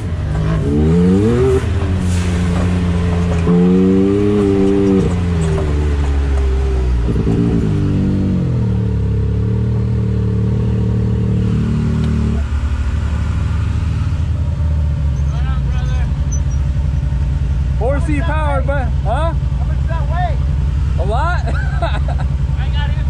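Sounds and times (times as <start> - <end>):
turbocharged engine revving: 0.0 - 23.0.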